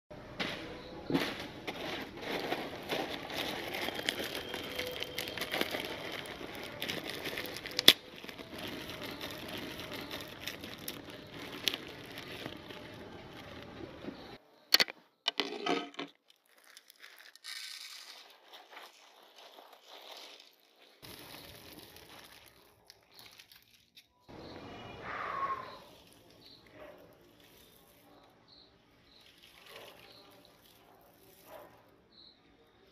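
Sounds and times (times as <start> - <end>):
plastic packet crinkling: 1.7 - 24.3.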